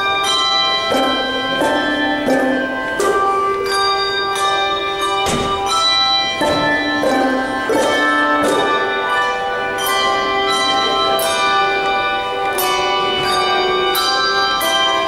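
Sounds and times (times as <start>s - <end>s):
handbell chords ringing: 0.0s - 15.0s.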